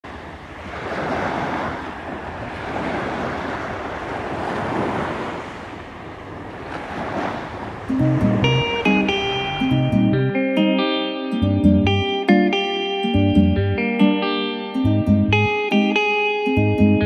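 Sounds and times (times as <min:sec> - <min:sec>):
waves washing up pebble beach: 0:00.1 - 0:09.6
plucked guitar music: 0:07.8 - 0:17.0.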